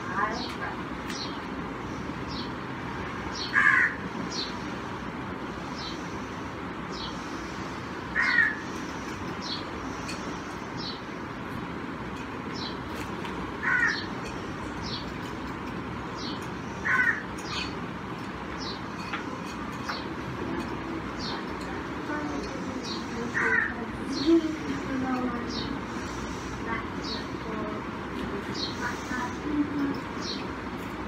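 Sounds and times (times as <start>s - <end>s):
steady background noise: 0.0s - 31.0s
crow cawing: 3.5s - 4.0s, 8.2s - 8.6s, 13.6s - 14.1s, 16.8s - 17.4s, 23.3s - 23.8s
faint small birds chirping: 12.2s - 31.0s.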